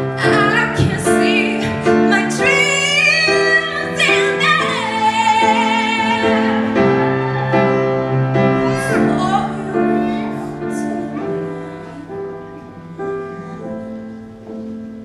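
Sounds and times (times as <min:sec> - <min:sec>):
woman singing: 0:00.0 - 0:07.4, 0:08.7 - 0:12.2.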